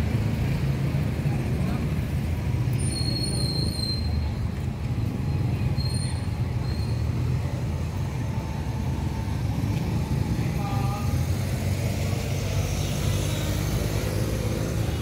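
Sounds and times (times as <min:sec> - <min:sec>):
street traffic rumble: 0:00.0 - 0:15.0
thin high squeal: 0:05.7 - 0:07.1.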